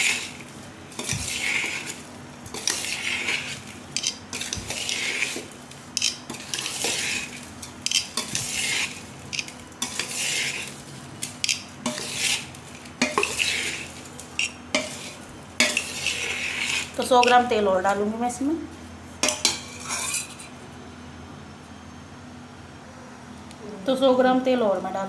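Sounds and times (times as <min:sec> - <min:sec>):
spoon scraping a steel bowl: 0:00.0 - 0:10.8, 0:11.4 - 0:17.5, 0:19.2 - 0:20.6.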